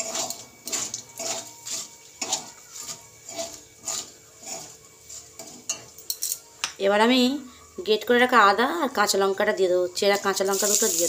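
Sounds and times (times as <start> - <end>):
spatula scraping metal pan: 0.0 - 6.1.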